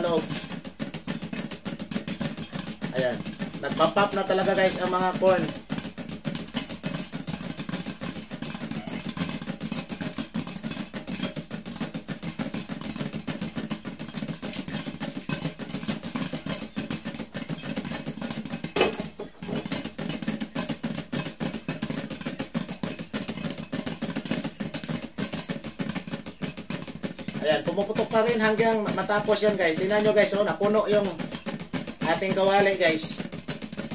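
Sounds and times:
pan being shaken: 0.0 - 33.9
popcorn popping in a pan: 0.0 - 33.9
loud knock: 18.7 - 19.9.

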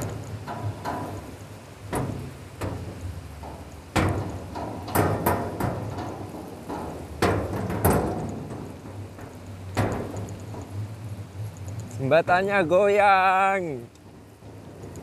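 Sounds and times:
bridge deck knocking and clattering: 0.0 - 11.4
low steady rumble: 0.0 - 15.0.

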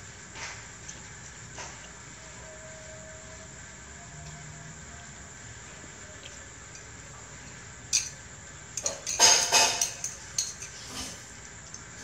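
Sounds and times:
cutlery clinking on ceramic plates: 8.8 - 11.2.

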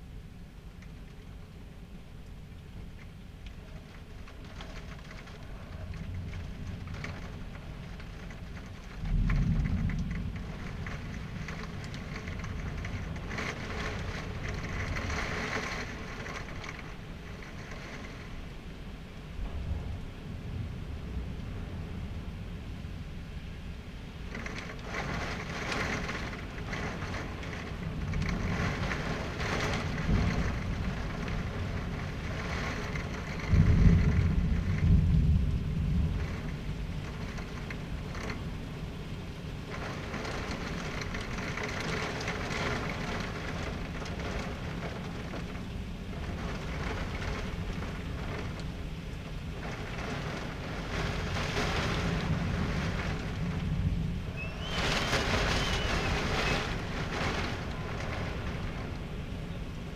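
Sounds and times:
heavy rain: 0.0 - 59.9
thunder rumble: 0.0 - 59.9
wind rushing: 49.5 - 59.4.

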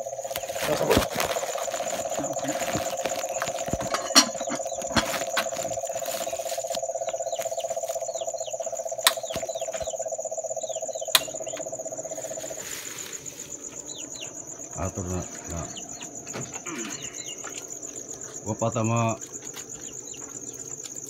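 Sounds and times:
crickets chirping: 0.0 - 21.0
sharp clicks: 9.0 - 10.0, 11.0 - 11.7.

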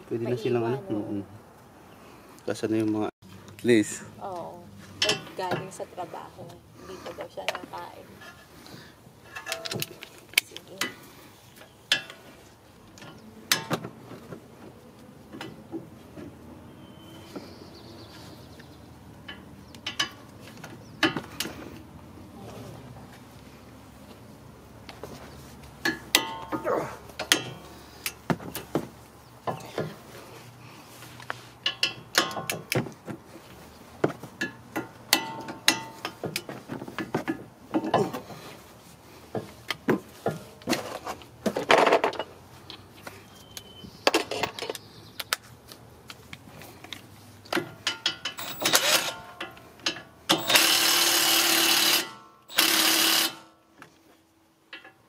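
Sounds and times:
metal tools clinking: 4.9 - 5.8, 9.2 - 11.0, 25.8 - 28.2, 31.6 - 32.8, 34.4 - 38.3, 40.2 - 44.8, 46.8 - 53.4
cordless power tool running: 48.4 - 49.2, 50.3 - 53.5.

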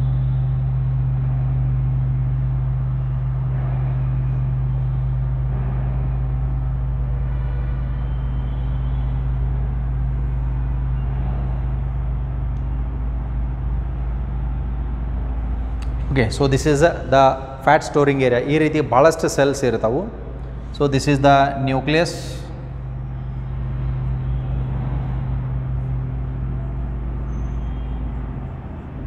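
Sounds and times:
low hum: 0.0 - 29.0.

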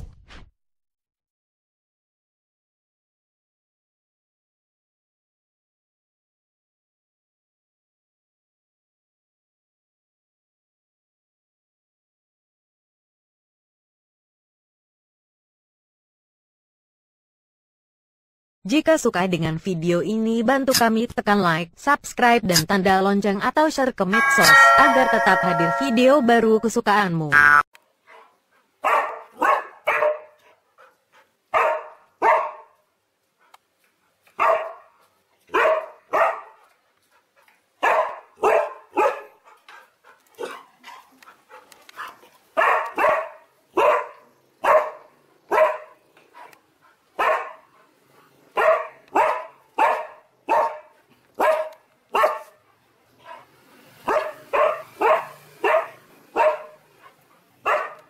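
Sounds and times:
dog barking: 28.0 - 30.6, 31.5 - 32.8, 34.4 - 36.7, 37.8 - 39.6, 40.4 - 46.6, 47.2 - 47.9, 48.5 - 58.0.

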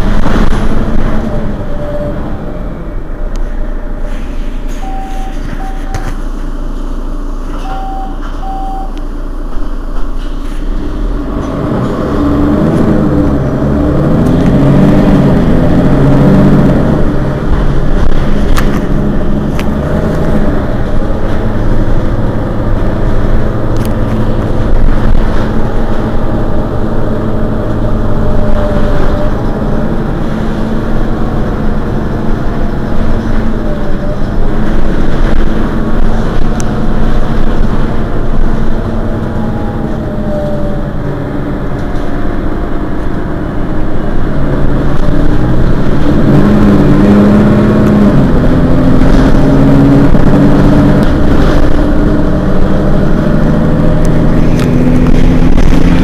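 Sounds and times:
bus diesel engine: 0.0 - 56.0
short high beeps: 4.8 - 6.2, 7.6 - 9.0.

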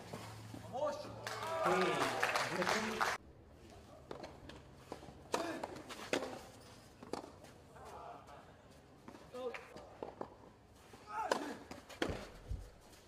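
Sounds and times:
knocks and taps on clay court: 4.0 - 8.0, 9.0 - 10.5, 11.1 - 12.7.

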